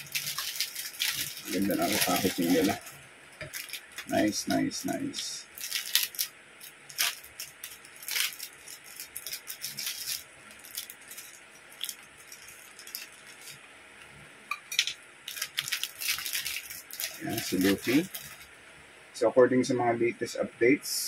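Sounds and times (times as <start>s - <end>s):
plastic parts clicking and rattling: 0.0s - 4.2s, 6.9s - 13.6s, 14.7s - 18.4s
plastic bag crinkling: 0.0s - 13.6s, 14.7s - 18.5s.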